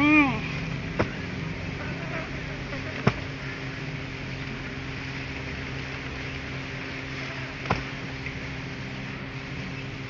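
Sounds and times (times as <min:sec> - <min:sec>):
steady low hum: 0:00.0 - 0:10.0
garden hoe striking soil: 0:01.0 - 0:01.2, 0:03.0 - 0:03.3.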